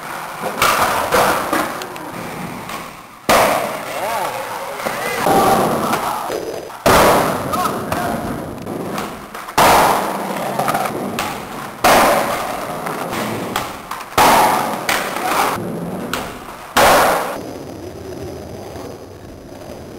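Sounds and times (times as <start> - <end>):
skateboard wheels rolling: 0.0 - 19.9
skateboard landing bang: 0.4 - 3.9, 5.2 - 17.4.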